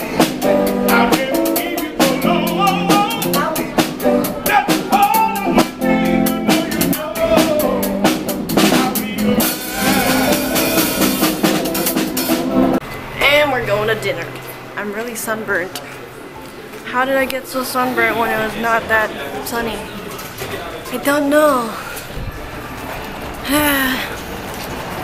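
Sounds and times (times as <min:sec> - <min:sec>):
man singing: 0:00.0 - 0:11.4
electric guitar: 0:00.0 - 0:12.8
snare drum and cymbal: 0:06.5 - 0:12.7.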